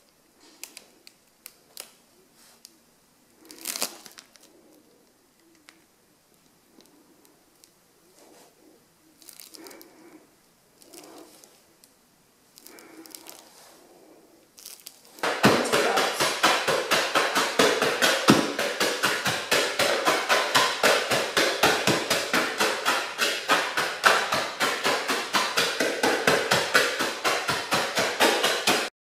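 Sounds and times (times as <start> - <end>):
rolling pin pounding cookies: 12.7 - 13.3, 15.2 - 28.9.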